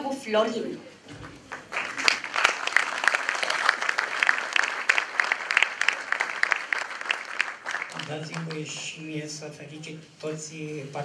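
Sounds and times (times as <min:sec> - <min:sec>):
audience applauding: 0:01.1 - 0:09.0.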